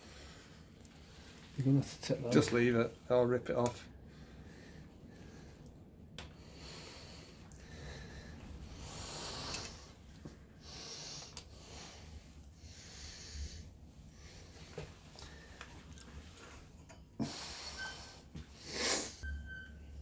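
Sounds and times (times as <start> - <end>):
person breathing through the nose: 6.4 - 15.7, 17.2 - 19.2.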